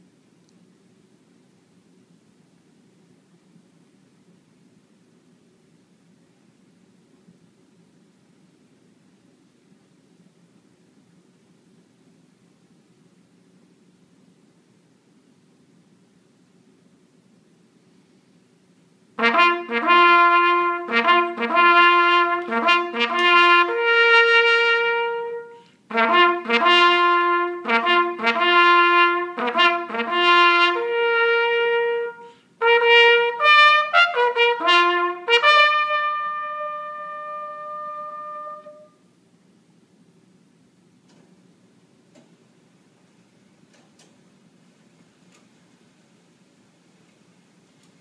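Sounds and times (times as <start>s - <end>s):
trumpet playing bugle call: 19.2s - 39.0s.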